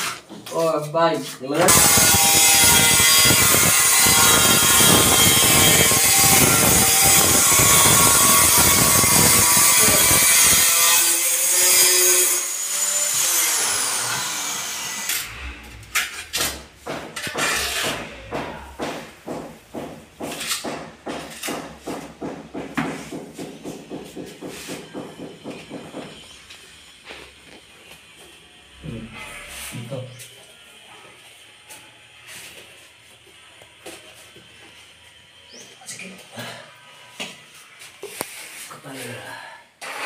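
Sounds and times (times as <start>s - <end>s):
power tool running: 1.7s - 16.6s, 39.8s - 40.0s.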